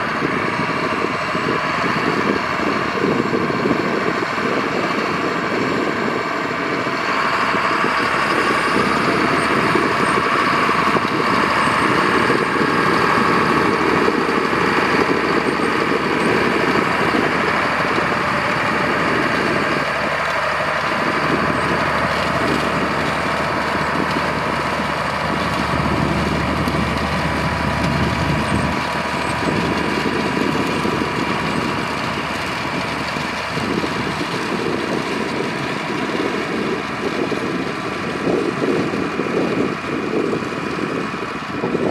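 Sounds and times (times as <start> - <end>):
diesel tractor engine running: 0.0 - 41.9.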